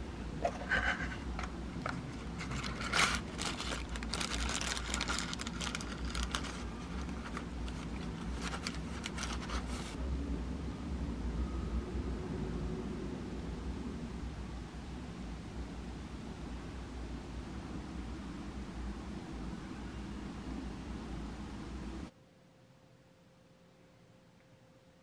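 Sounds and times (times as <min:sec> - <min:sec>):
plastic wrapping crinkling: 0:01.8 - 0:10.0.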